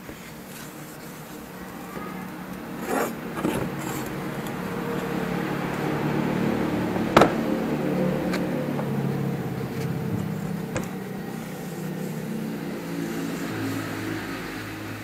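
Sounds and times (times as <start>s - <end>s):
rustling: 0.0s - 5.1s, 9.6s - 14.2s
low motor hum: 0.6s - 15.0s.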